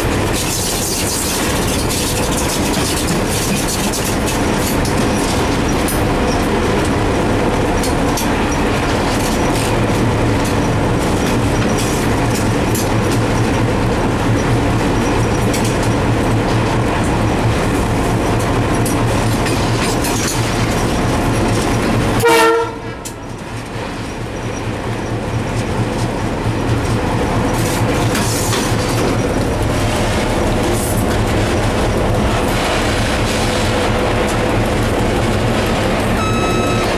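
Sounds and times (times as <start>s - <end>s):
clickety-clack of rail joints: 0.0s - 36.9s
locomotive engine and wheels rumbling: 0.0s - 36.9s
train horn: 22.2s - 23.1s.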